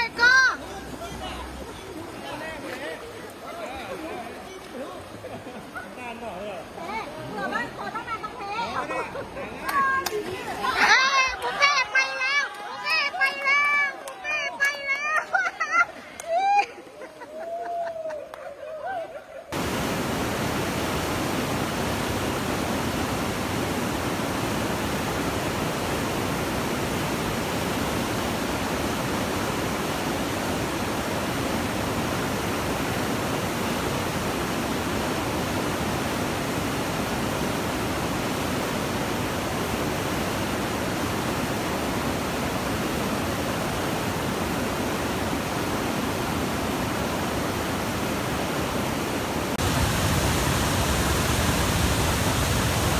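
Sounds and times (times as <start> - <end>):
water rushing over rocks: 0.0 - 5.7, 19.6 - 52.9.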